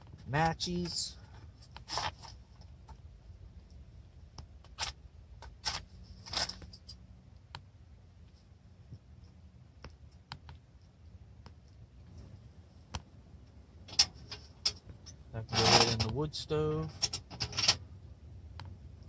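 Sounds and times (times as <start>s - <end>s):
faint clicks and taps: 7.3s - 13.6s, 18.5s - 19.0s.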